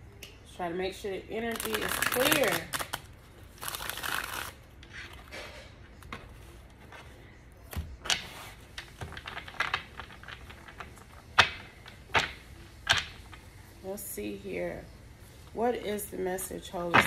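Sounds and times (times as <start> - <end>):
cards being shuffled: 1.5 - 5.3.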